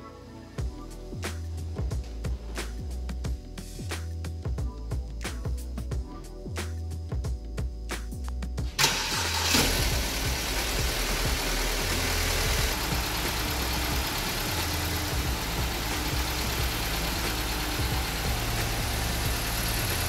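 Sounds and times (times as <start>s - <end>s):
car engine idling: 8.7s - 20.0s.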